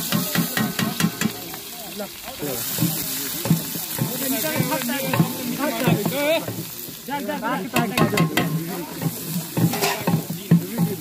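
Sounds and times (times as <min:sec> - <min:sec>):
meat sizzling: 0:00.0 - 0:11.0
wooden stick scraping metal pot: 0:07.8 - 0:11.0.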